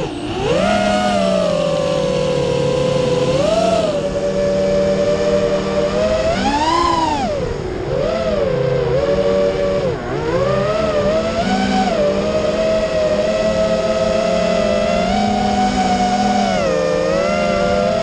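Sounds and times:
drone motors whining: 0.0s - 18.0s.

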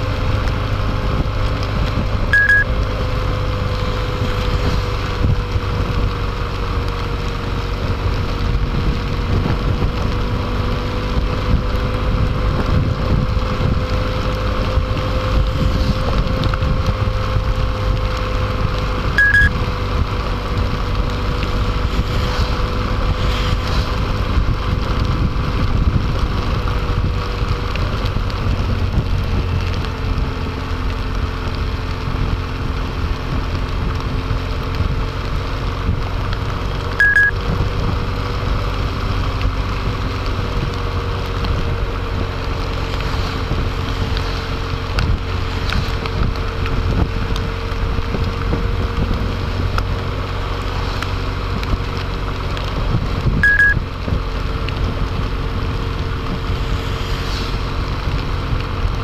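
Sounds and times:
motorcycle engine running: 0.0s - 59.0s
wind noise on microphone: 0.0s - 59.0s
short high electronic beep: 2.4s - 2.6s, 19.2s - 19.5s, 37.0s - 37.3s, 53.4s - 53.8s.

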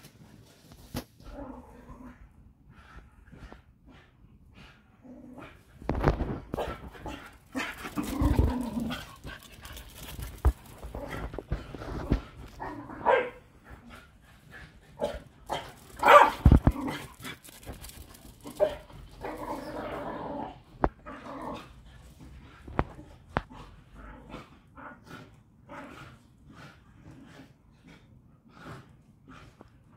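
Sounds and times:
dogs barking and yipping: 13.0s - 13.5s, 15.0s - 17.0s.

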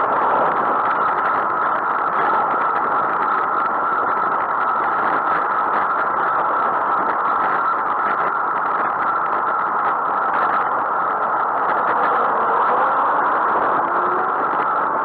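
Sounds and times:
road noise: 0.0s - 15.0s
wind rushing: 0.0s - 15.0s.

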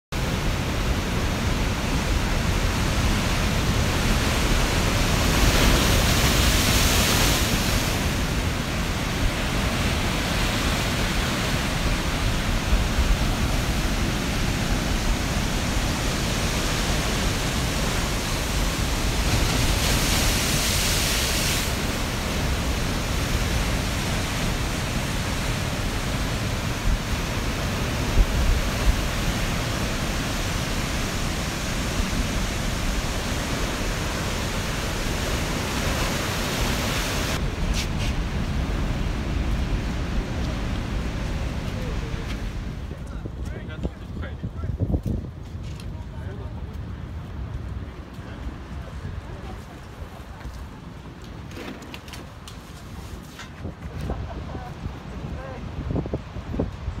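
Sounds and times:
surf breaking over rocks: 0.2s - 43.9s.

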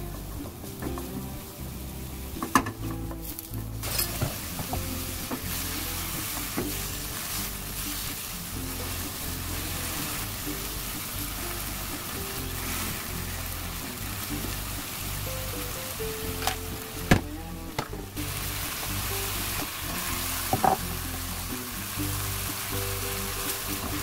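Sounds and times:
mushrooms sizzling in oil: 0.2s - 24.0s
utensils knocking on wok: 19.6s - 21.7s.

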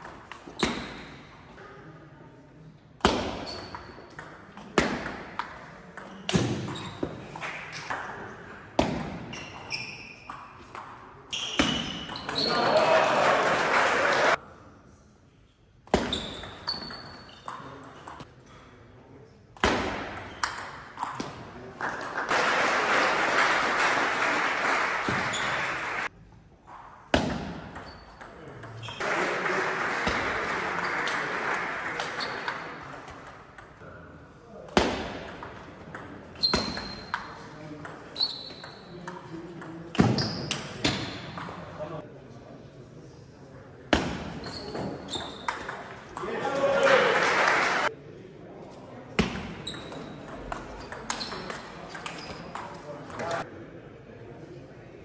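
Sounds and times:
applause in a hall: 12.6s - 14.4s, 21.8s - 26.1s, 29.0s - 32.8s, 46.5s - 47.9s
table tennis ball clacking: 49.2s - 53.4s.

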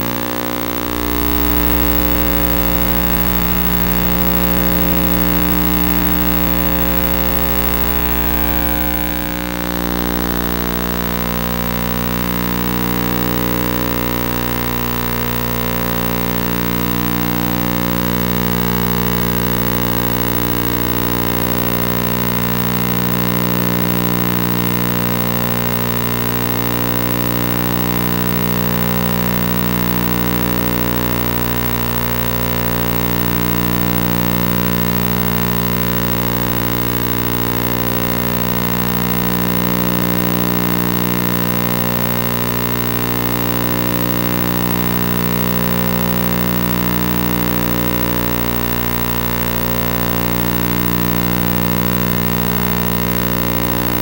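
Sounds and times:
loud pulsing drone: 0.0s - 12.4s.

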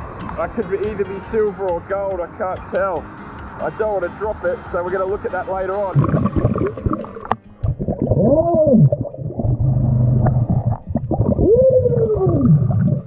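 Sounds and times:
rising and falling underwater tones: 5.9s - 13.0s.

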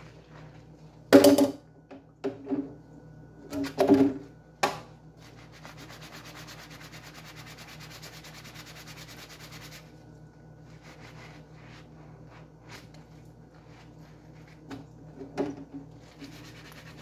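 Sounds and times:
sponge scrubbing a spoon: 5.2s - 10.0s, 10.6s - 17.0s.

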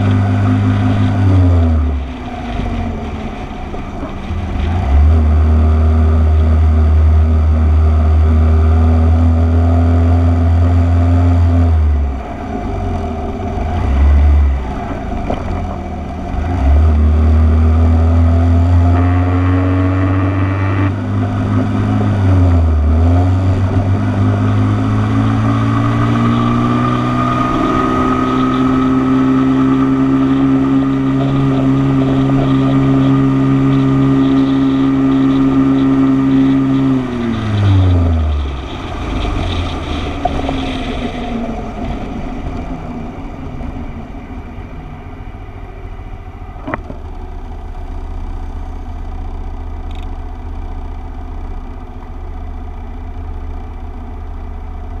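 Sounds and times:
motorcycle engine running: 18.8s - 55.0s.

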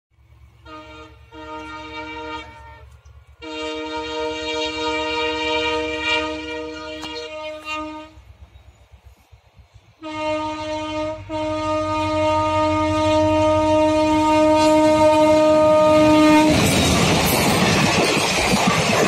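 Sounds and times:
train coaches rattling past: 0.1s - 19.0s
locomotive horn blasts: 0.6s - 8.4s, 10.0s - 17.0s.

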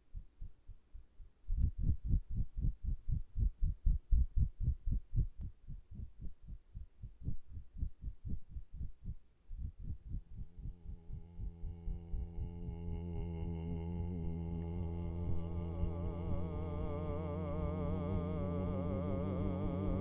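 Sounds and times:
fast low rhythmic thumping: 0.0s - 12.6s.

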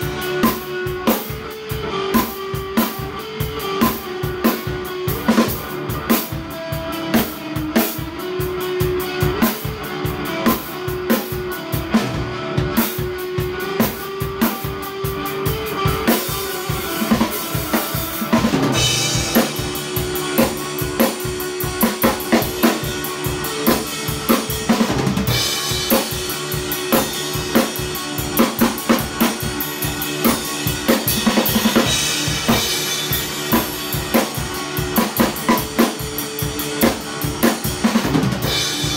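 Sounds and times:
drum kit played with sticks: 0.0s - 38.9s
sustained electric guitar: 0.0s - 38.9s.

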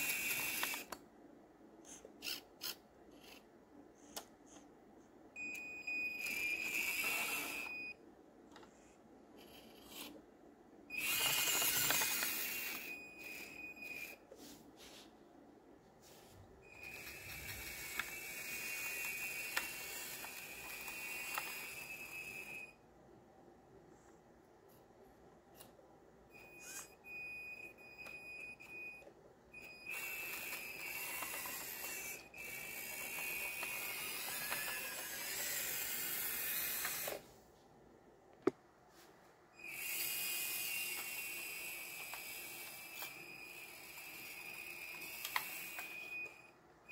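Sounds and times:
small electric motors whining: 0.0s - 1.0s, 1.9s - 3.4s, 5.9s - 8.0s, 9.4s - 10.2s, 10.9s - 14.2s, 16.7s - 22.8s, 26.4s - 27.0s, 29.6s - 37.3s, 39.6s - 46.5s.

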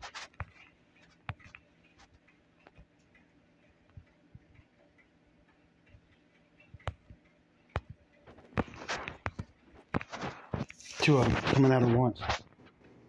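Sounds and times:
rubbing on phone: 0.0s - 1.6s, 8.3s - 12.5s
fingers clicking and tapping phone: 0.0s - 5.1s, 5.9s - 10.8s.

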